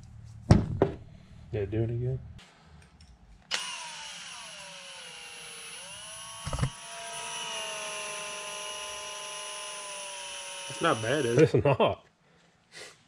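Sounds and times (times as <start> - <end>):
power tool motor whining: 3.5 - 11.5.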